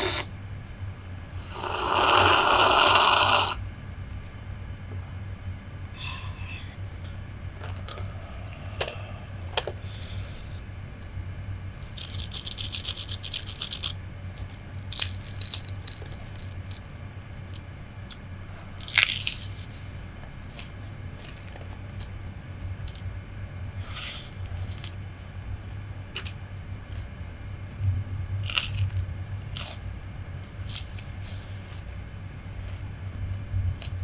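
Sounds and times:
fried snacks crunching being torn: 0:07.5 - 0:10.0, 0:11.8 - 0:18.2, 0:18.8 - 0:19.7, 0:28.4 - 0:31.1.

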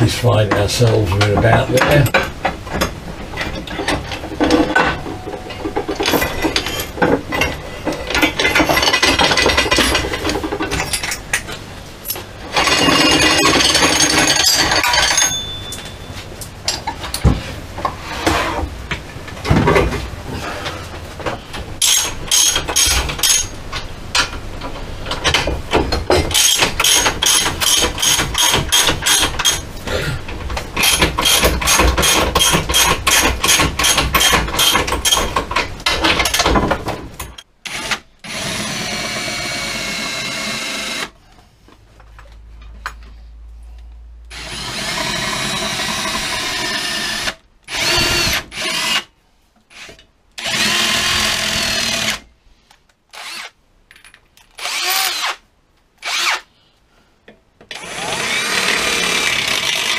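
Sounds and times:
rapid clicking and rattling on metal: 0:00.8 - 0:11.4
cordless drill drilling metal: 0:37.7 - 0:41.1, 0:44.3 - 0:49.1, 0:49.7 - 0:52.2, 0:53.1 - 0:53.5, 0:54.6 - 0:55.4, 0:56.0 - 0:56.5, 0:57.7 - 0:59.9.

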